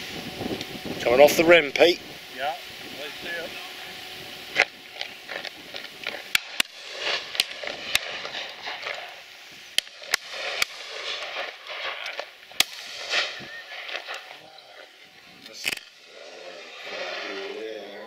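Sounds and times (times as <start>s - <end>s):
shotgun shots: 6.0s - 14.4s.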